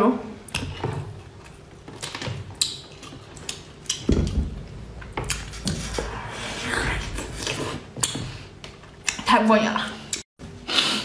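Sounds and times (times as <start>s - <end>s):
biting and chewing: 1.2s - 9.2s.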